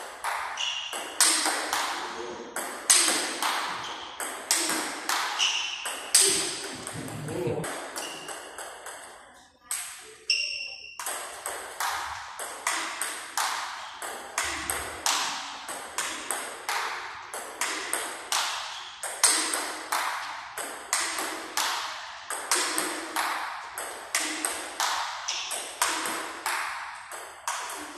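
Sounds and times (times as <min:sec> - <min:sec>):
ping pong ball hitting paddles: 0:00.1 - 0:27.9
ball bouncing on table: 0:02.6 - 0:09.2, 0:20.9 - 0:27.9.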